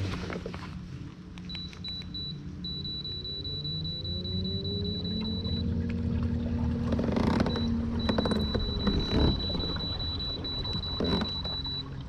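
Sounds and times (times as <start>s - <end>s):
electric trolling motor whining: 2.7s - 12.0s.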